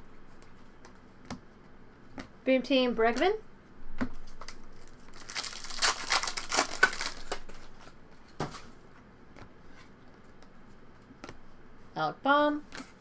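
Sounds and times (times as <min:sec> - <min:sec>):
foil wrapper tearing and crinkling: 0:04.7 - 0:07.5.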